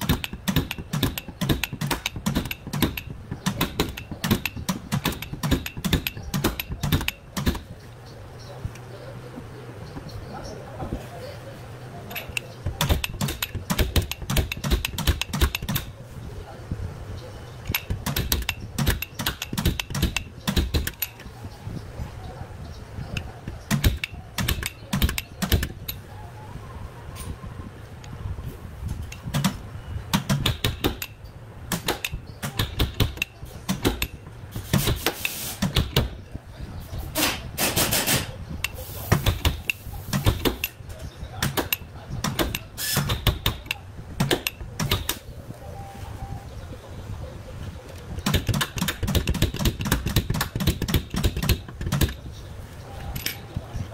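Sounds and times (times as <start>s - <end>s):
slide hammer metal knocks: 0.0s - 7.8s, 12.1s - 16.0s, 17.6s - 21.4s, 23.0s - 26.1s, 28.9s - 36.3s.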